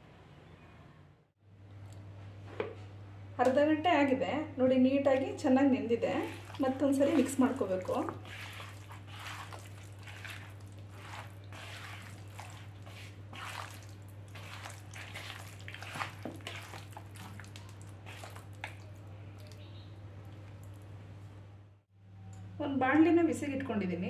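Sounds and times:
hand squelching marinated fish: 6.1s - 20.9s.

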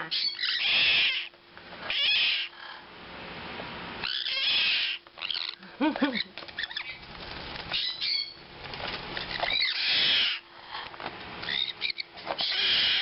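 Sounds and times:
harsh parrot rasp: 0.1s - 2.8s, 4.0s - 5.6s, 9.3s - 10.9s, 11.5s - 13.0s
parrots flapping wings: 6.0s - 13.0s
birds scuffling on a perch: 6.2s - 13.0s.

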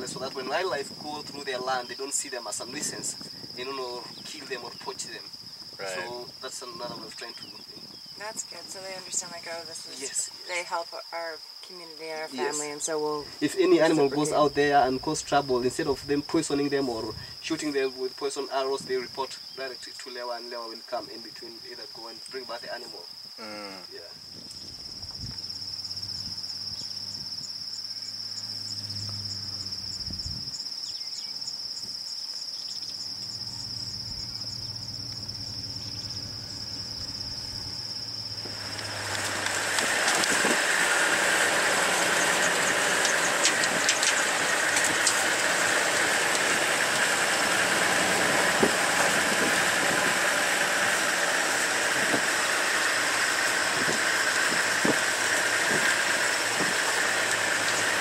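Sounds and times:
insect trill: 0.0s - 58.0s
vehicle engine driving: 25.0s - 30.4s, 32.8s - 58.0s.

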